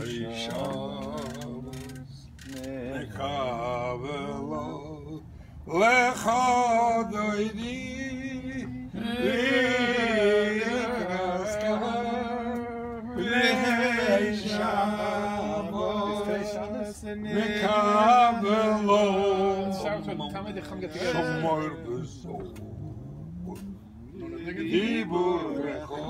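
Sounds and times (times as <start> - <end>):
men singing a chant: 0.0 - 26.0
breaths: 5.2 - 5.7.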